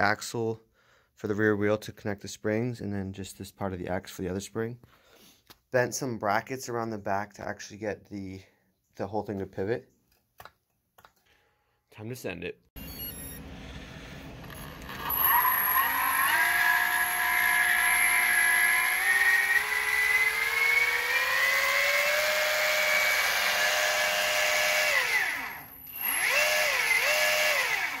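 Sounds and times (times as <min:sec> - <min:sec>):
electric motor whine: 0:12.8 - 0:28.0.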